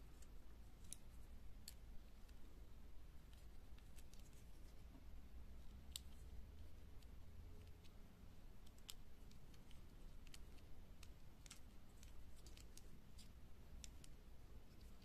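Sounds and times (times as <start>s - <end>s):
small plastic clicks: 8.6s - 15.0s.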